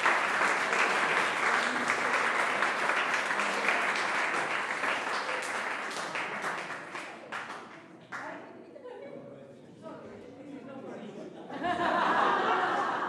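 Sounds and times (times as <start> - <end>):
hands clapping: 0.0 - 8.4.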